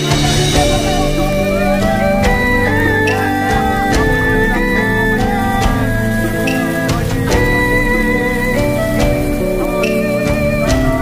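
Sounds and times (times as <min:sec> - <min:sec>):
background music held notes: 0:00.0 - 0:11.0.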